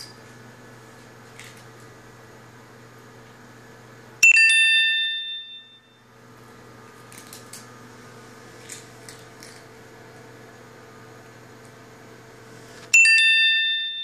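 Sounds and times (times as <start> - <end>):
bell-like chime: 4.2 - 6.0, 13.0 - 14.0.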